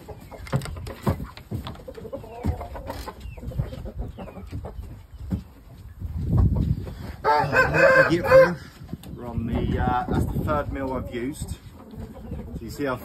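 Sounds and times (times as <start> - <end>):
chickens clucking: 0.0 - 13.0
loud long chicken call: 7.2 - 8.6.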